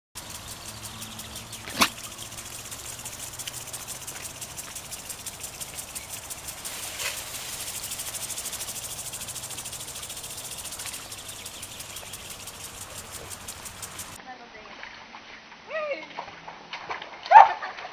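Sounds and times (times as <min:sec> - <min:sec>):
insects chirping: 0:00.2 - 0:14.2
sharp click: 0:00.6 - 0:14.2.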